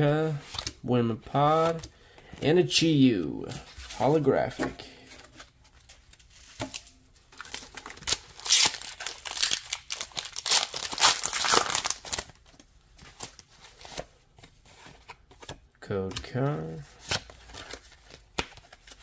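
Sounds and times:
cards handled: 0:17.0 - 0:19.0.

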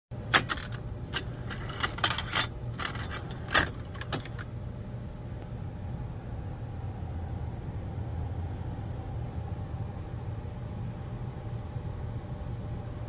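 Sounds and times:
steady low hum: 0:00.1 - 0:13.0
cassette mechanism clicks and clunks: 0:00.2 - 0:04.5.

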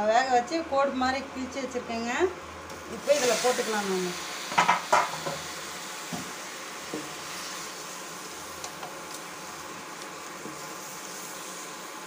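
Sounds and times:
food sizzling in a pan: 0:02.7 - 0:12.0.

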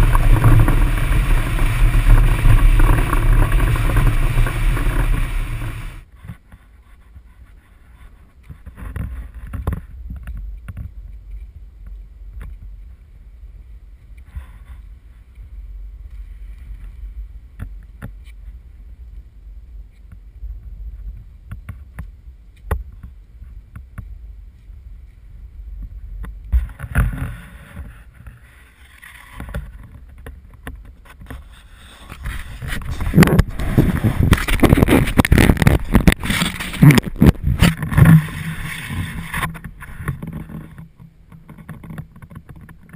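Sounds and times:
low wind rumble: 0:00.0 - 0:06.2, 0:06.8 - 0:42.9
rustling and bumping against camera: 0:29.0 - 0:42.9.

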